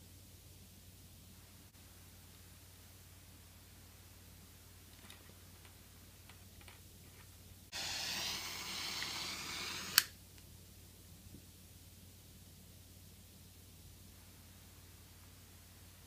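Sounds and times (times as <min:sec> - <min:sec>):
soldering iron hissing: 0:07.7 - 0:10.2
sharp click: 0:09.8 - 0:10.2.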